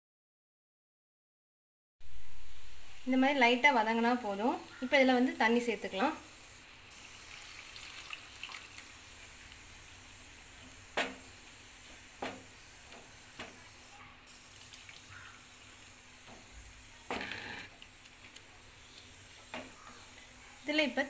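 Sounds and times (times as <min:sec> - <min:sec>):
water pouring into hot pan: 0:07.0 - 0:10.5, 0:14.3 - 0:16.2.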